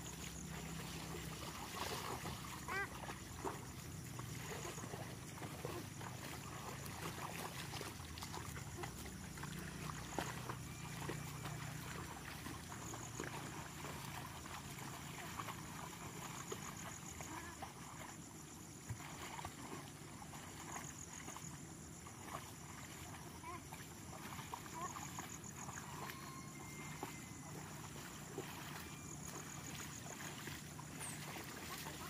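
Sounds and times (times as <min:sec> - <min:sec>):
sloshing and splashing in water: 0:00.0 - 0:32.0.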